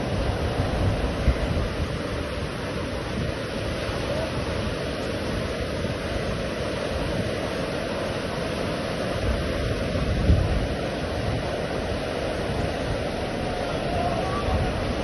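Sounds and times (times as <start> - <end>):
ocean surf breaking: 0.0 - 15.0
wind rumbling on microphone: 0.0 - 15.0.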